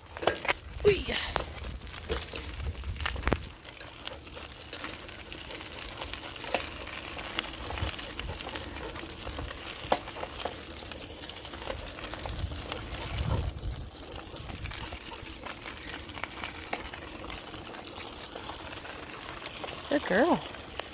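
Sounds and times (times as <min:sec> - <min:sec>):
footsteps crunching on gravel: 0:00.0 - 0:11.0.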